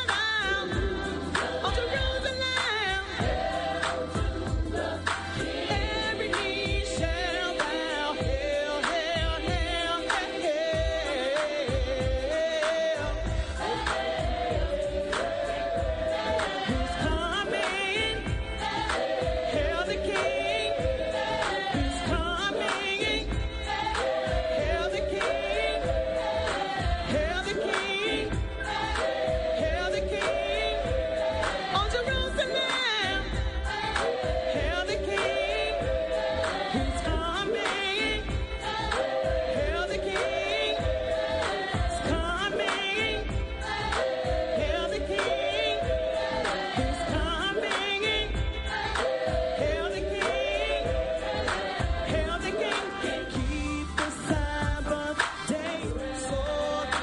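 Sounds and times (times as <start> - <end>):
gospel choir singing: 0.0 - 57.0
steady low beat: 0.6 - 32.6.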